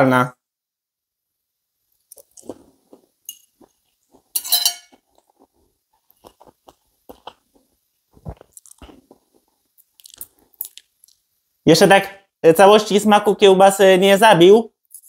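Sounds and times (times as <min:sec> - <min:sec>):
person chewing: 0:01.9 - 0:11.4
wet mouth clicks and smacks: 0:02.0 - 0:04.3, 0:06.0 - 0:11.3.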